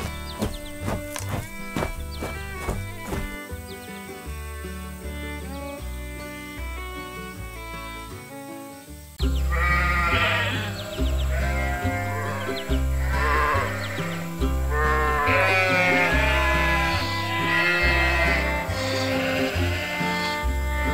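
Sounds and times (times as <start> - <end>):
sheep bleating: 0.0 - 3.3, 9.4 - 20.9
background music: 0.0 - 20.9.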